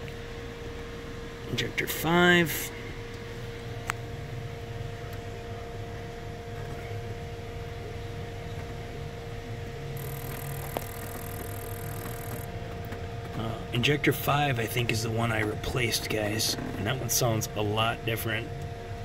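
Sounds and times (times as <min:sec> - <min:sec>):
fuel pump hum: 0:00.0 - 0:19.0.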